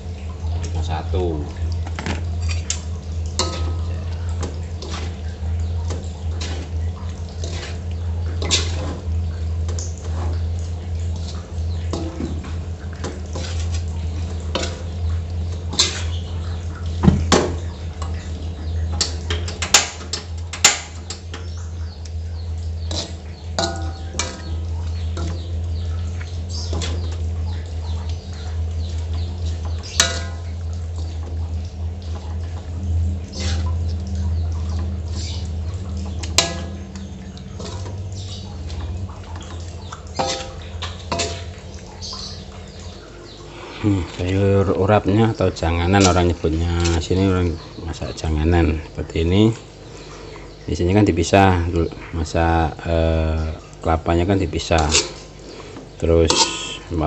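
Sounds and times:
low hum: 0.0s - 57.0s
spatula clanging against wok: 2.4s - 5.2s, 22.9s - 24.6s, 29.7s - 30.5s, 36.2s - 37.0s, 40.2s - 41.6s, 56.3s - 56.9s
spatula scraping metal wok: 7.4s - 8.9s, 33.3s - 33.7s
metal spoon scraping a wok: 33.3s - 33.7s, 56.3s - 56.8s.

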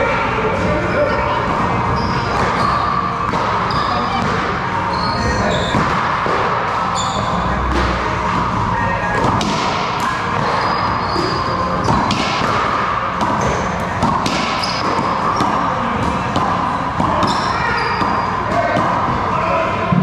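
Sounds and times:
steady background hum: 0.0s - 20.0s
sneaker squeaks on court floor: 1.8s - 6.1s, 6.7s - 7.9s, 9.4s - 16.3s, 17.0s - 18.8s
racquetball smacks: 11.8s - 17.3s.

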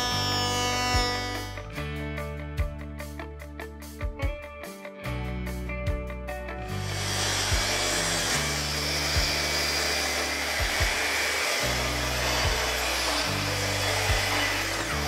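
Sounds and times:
track saw cutting wood: 0.0s - 1.7s, 6.7s - 15.0s
background music with steady beat: 0.0s - 15.0s.

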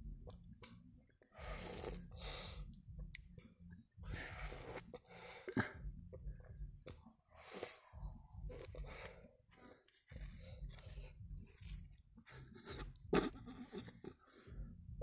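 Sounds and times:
child biting and slurping: 1.4s - 2.1s, 4.2s - 5.0s, 7.4s - 7.8s, 8.4s - 8.9s
child breathing: 1.4s - 2.7s, 7.2s - 11.6s.

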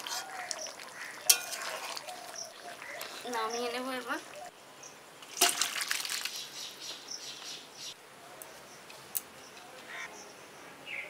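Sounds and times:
spatula scraping metal pan: 0.0s - 0.4s, 1.3s - 2.0s.

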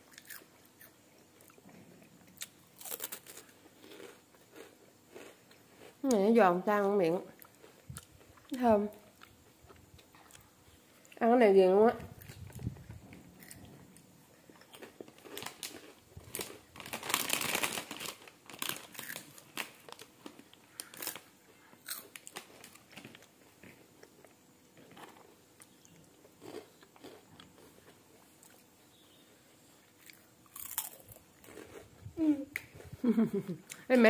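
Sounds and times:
child crunching snack sticks: 0.0s - 1.6s, 2.2s - 6.1s, 7.4s - 8.5s, 14.4s - 28.6s, 30.0s - 33.2s.

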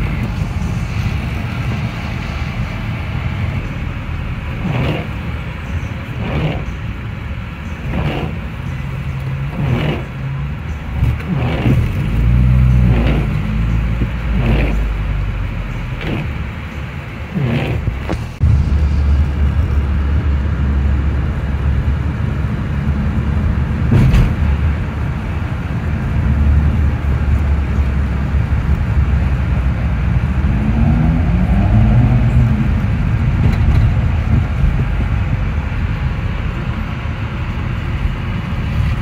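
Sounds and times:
car engine running: 0.0s - 39.0s
windscreen wipers swishing: 0.0s - 39.0s.

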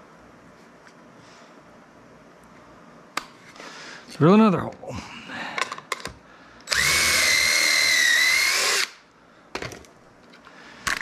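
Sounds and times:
cordless drill whining: 6.7s - 9.0s.

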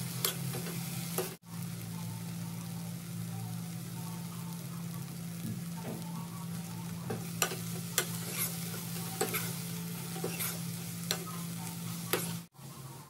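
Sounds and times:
onions sizzling in a wok: 0.0s - 13.0s
metal spoon scraping a pan: 7.1s - 12.5s.

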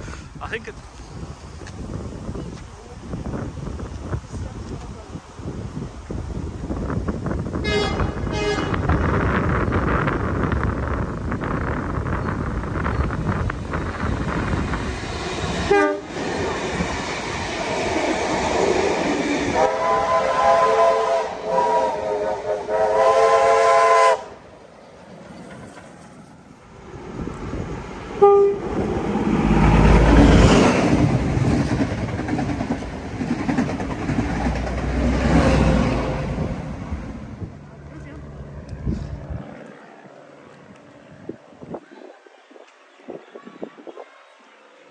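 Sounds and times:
trains passing with rumble: 0.0s - 44.9s
locomotive horn blasts: 7.6s - 9.0s, 15.7s - 16.1s, 19.6s - 24.3s, 28.2s - 28.7s.

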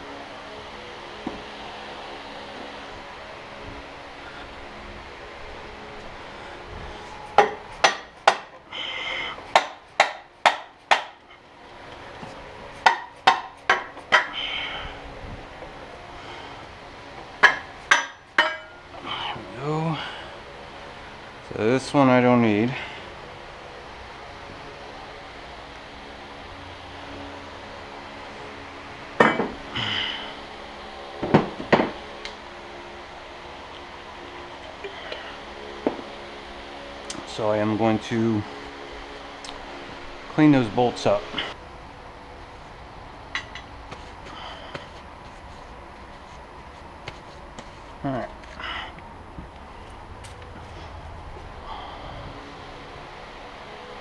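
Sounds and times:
metallic ringing: 17.4s - 18.9s
tools clattering on workbench: 29.2s - 29.6s.

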